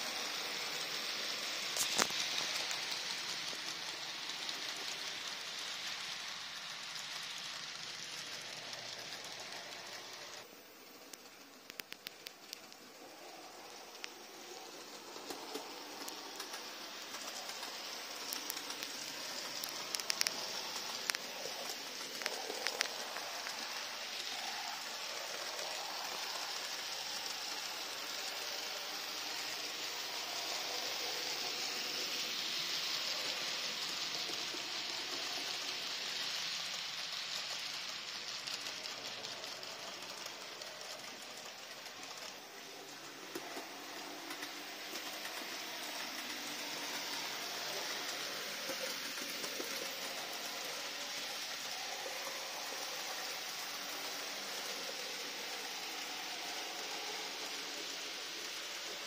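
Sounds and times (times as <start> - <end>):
model train motor whirring: 0.0 - 59.0
sharp clicks: 11.1 - 12.9, 15.2 - 23.7.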